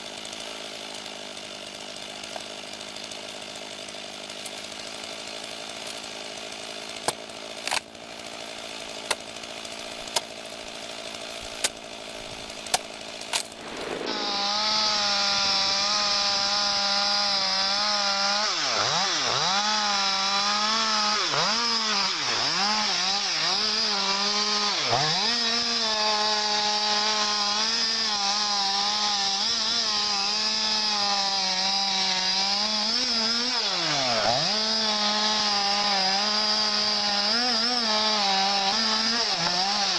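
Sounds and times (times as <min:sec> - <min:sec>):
chainsaw cutting tree trunk: 0:00.0 - 0:39.9
axe striking wood: 0:07.0 - 0:07.9, 0:09.0 - 0:09.3, 0:10.0 - 0:10.4, 0:12.6 - 0:16.1.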